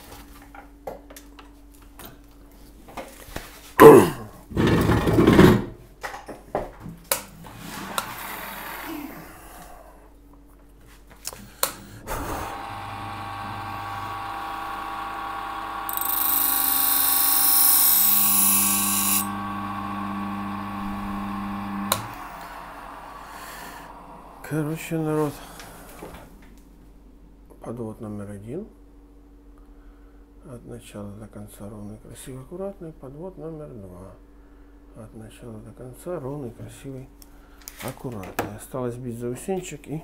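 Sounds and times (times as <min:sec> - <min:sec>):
electric grinder humming: 0:12.1 - 0:24.6
knife grinding hiss: 0:15.9 - 0:19.3.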